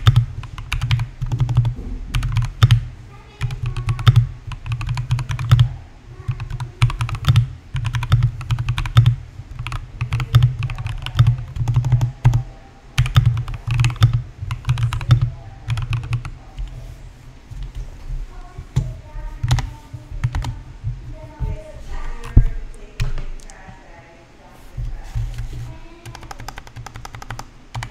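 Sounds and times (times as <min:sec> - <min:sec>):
mechanical keyboard typing: 0:00.0 - 0:12.4, 0:13.0 - 0:16.7, 0:20.2 - 0:20.5, 0:26.0 - 0:27.9.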